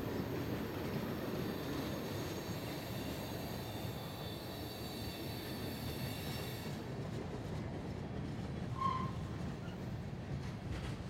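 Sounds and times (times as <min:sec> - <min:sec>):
train wheels rumbling on rail: 0:00.0 - 0:11.0
high-pitched wheel squeal: 0:08.8 - 0:09.2.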